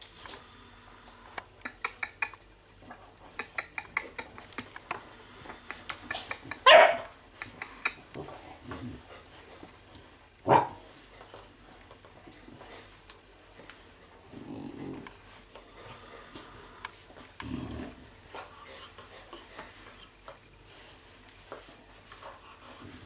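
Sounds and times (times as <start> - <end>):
puppy barking: 6.6 - 7.1, 10.5 - 10.8.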